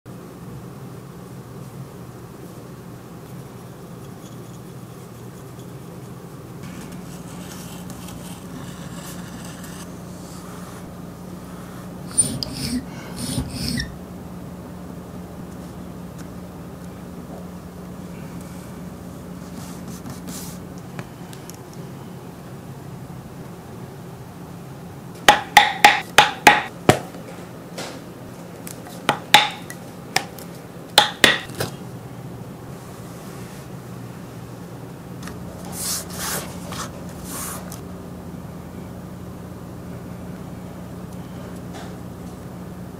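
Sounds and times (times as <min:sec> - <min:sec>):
steady low hum: 0:00.1 - 0:42.9
scratchy rubbing on leather edge: 0:06.8 - 0:10.9, 0:11.6 - 0:14.0
striker tapping metal tool: 0:25.3 - 0:26.7, 0:29.1 - 0:29.8, 0:31.0 - 0:31.5.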